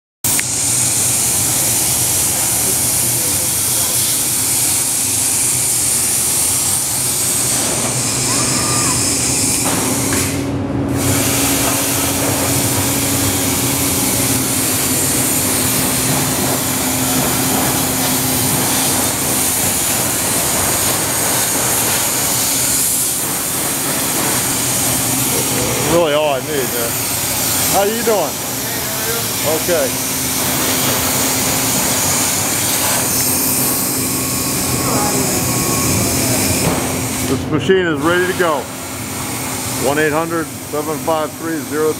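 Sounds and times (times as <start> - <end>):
plasma cutter hissing: 0.3 - 37.4, 38.0 - 41.9.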